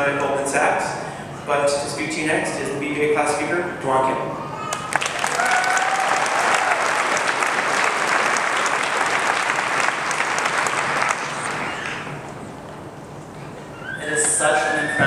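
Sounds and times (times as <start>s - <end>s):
audience applauding: 4.7s - 12.2s.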